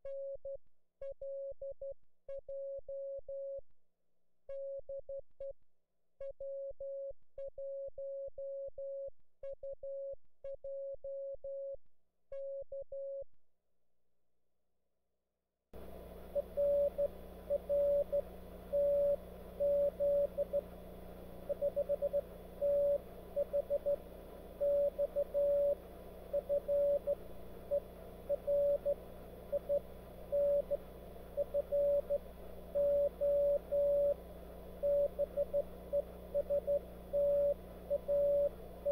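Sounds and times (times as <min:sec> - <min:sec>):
morse code tone: 0:16.3 - 0:20.7, 0:21.5 - 0:24.0, 0:24.6 - 0:34.2, 0:34.8 - 0:38.9.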